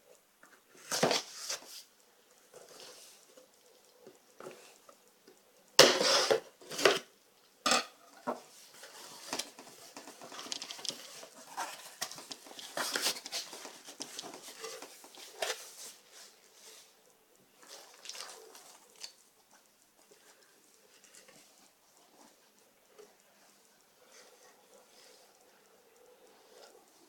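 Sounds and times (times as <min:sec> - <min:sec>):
cardboard rustling and crinkling: 0:00.5 - 0:01.9, 0:08.2 - 0:17.0.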